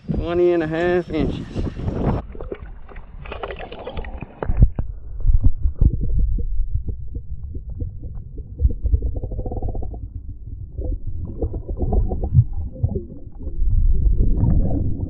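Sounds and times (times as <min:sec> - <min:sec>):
muffled underwater rumbling: 0:01.1 - 0:15.0
dull knocks underwater: 0:01.9 - 0:10.0, 0:10.7 - 0:15.0
water splashing: 0:02.1 - 0:05.0.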